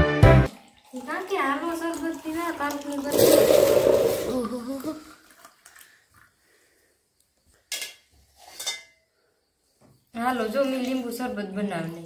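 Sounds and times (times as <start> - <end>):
dishes and utensils clinking: 7.7 - 9.0.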